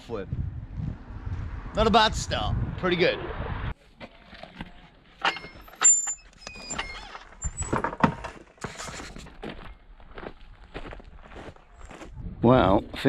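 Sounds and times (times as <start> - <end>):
short high squeaks: 5.2 - 7.8
footsteps on gravel: 8.3 - 12.2.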